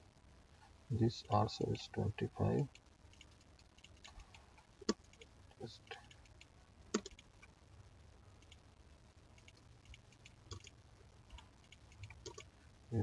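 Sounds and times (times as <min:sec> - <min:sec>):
faint low hum: 0:00.0 - 0:13.0
mouse and keyboard clicks: 0:06.0 - 0:07.2, 0:09.4 - 0:10.7, 0:11.3 - 0:12.5.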